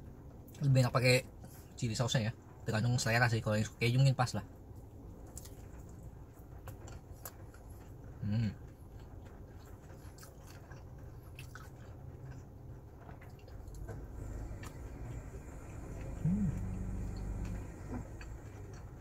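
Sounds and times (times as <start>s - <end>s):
low steady rumble: 0.0s - 19.0s
faint crunches of crisp pastry: 4.7s - 13.9s
person chewing food: 5.2s - 19.0s
closed-mouth hum: 13.7s - 19.0s.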